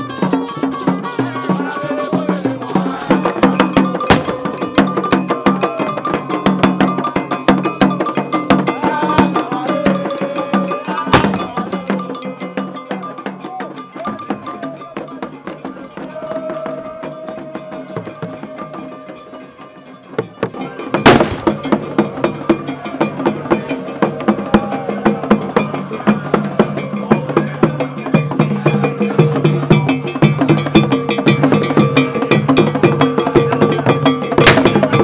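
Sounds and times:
drum ensemble playing: 0:00.0 - 0:35.0
sharp bang: 0:04.1 - 0:04.6, 0:21.1 - 0:21.8, 0:34.4 - 0:35.0.

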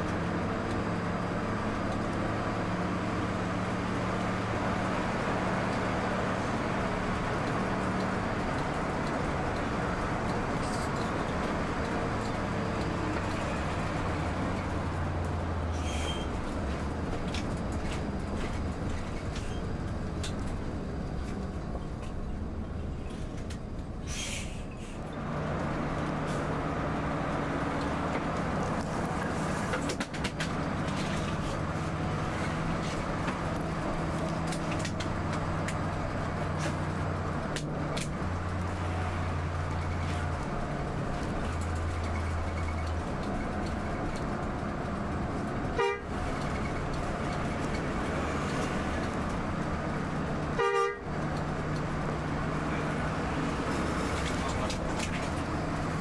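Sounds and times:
coach engine drone: 0:00.0 - 0:56.0
road noise: 0:00.0 - 0:56.0
horn blasts: 0:45.7 - 0:46.1, 0:50.6 - 0:51.1.

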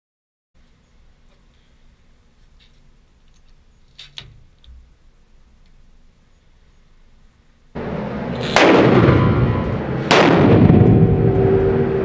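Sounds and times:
rifle shots with ringing echo: 0:08.4 - 0:09.4, 0:10.0 - 0:11.0.

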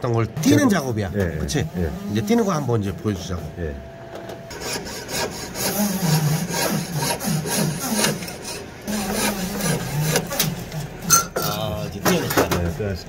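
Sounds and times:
piercing saw cutting metal: 0:04.5 - 0:11.4.

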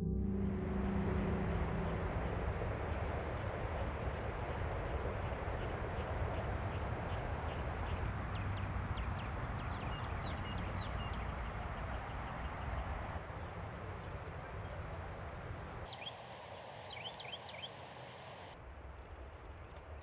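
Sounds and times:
low rumble: 0:00.0 - 0:09.1
steady rushing noise: 0:00.4 - 0:09.7
small birds chirping: 0:05.2 - 0:18.6.

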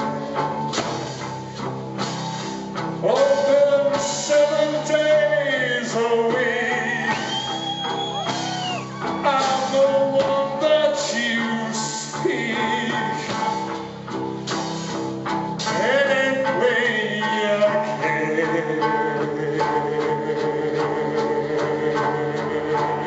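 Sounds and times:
drums: 0:00.0 - 0:23.0
electric guitars: 0:00.0 - 0:23.0
person singing long notes: 0:03.0 - 0:13.7, 0:15.7 - 0:23.0.

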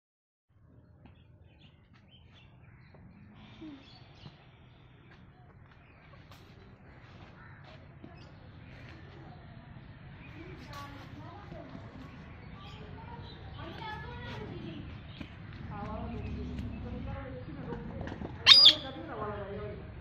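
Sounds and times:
birds calling: 0:10.2 - 0:19.4.

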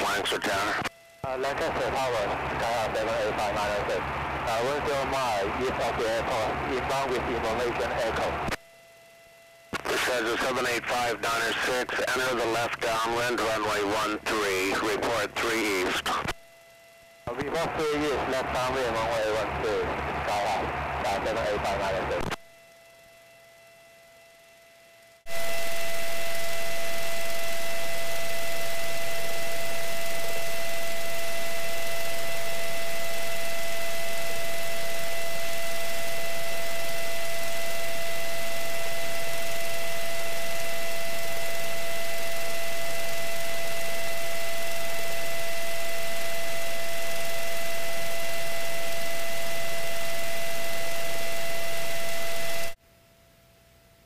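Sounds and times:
radio static hiss: 0:00.0 - 0:08.8, 0:09.7 - 0:16.6, 0:17.2 - 0:22.5, 0:25.3 - 0:52.8
thin electrical whine: 0:00.0 - 0:54.0.

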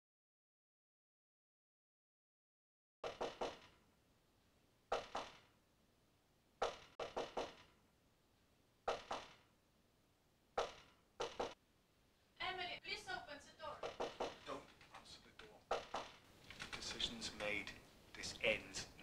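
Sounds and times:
knocking on a door: 0:13.8 - 0:14.5.

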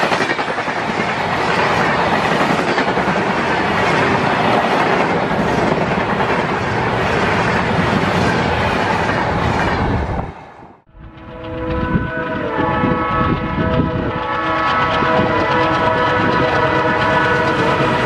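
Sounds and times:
train wheels clickety-clack: 0:00.0 - 0:10.0, 0:11.2 - 0:18.0.

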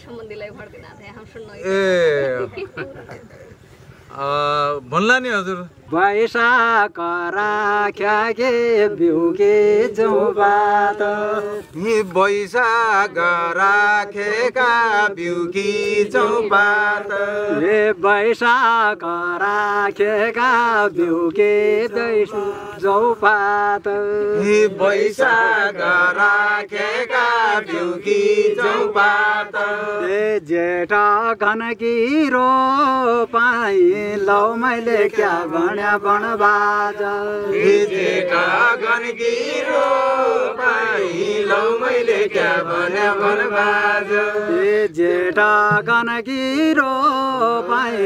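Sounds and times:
person singing slow folk song: 0:03.2 - 0:48.0.

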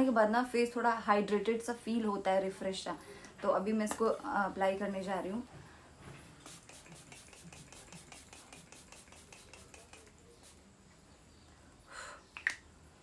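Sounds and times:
spray bottle hissing: 0:06.4 - 0:10.7.

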